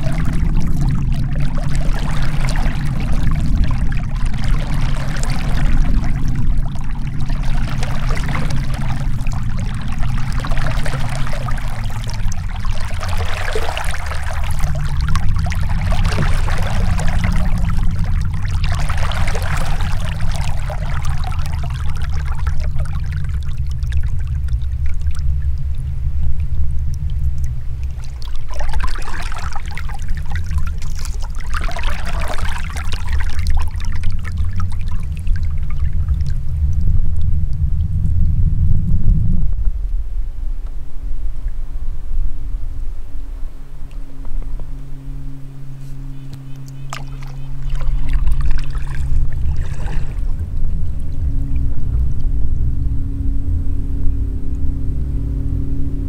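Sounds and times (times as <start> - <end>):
paddle splashing water: 0.0 - 25.2, 27.4 - 36.3, 45.8 - 52.0
low rumble: 0.0 - 56.0.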